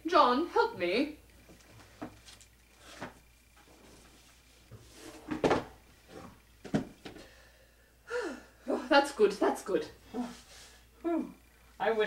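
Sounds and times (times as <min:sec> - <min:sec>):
books thumping and knocking: 0:01.9 - 0:03.2, 0:04.7 - 0:07.2.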